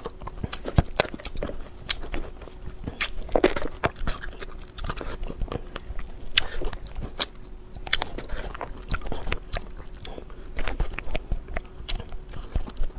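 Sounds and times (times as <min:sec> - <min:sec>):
crunchy chewing and biting: 0:00.0 - 0:12.9.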